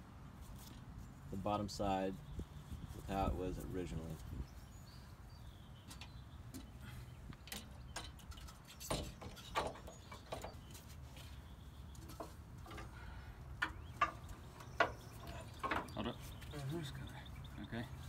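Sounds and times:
metal clicks and knocks: 0:13.6 - 0:16.0.

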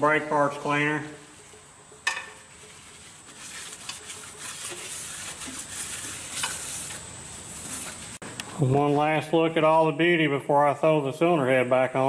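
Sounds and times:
rag scrubbing metal surface: 0:00.0 - 0:08.2.

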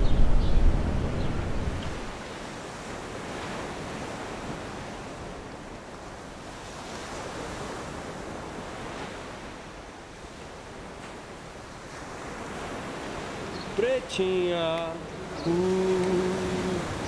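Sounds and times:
sea surf washing in: 0:00.0 - 0:17.0.

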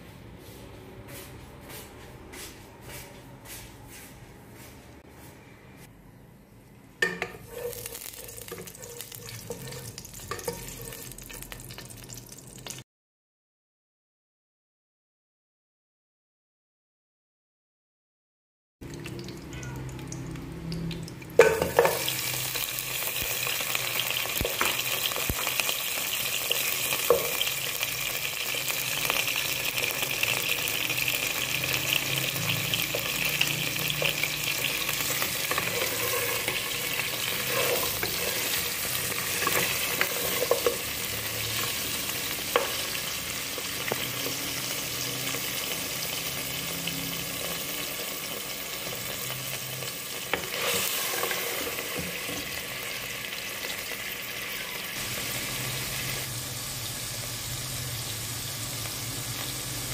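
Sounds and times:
meat sizzling in hot oil: 0:07.4 - 0:12.8, 0:18.9 - 0:59.9.

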